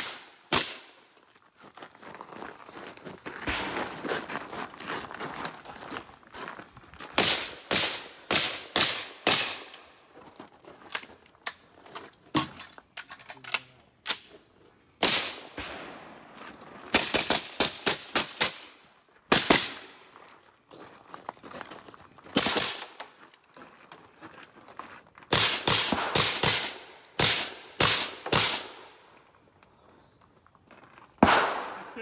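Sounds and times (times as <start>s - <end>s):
rifle gunshots with echo: 15.0s - 16.3s, 25.3s - 28.9s, 31.2s - 32.0s.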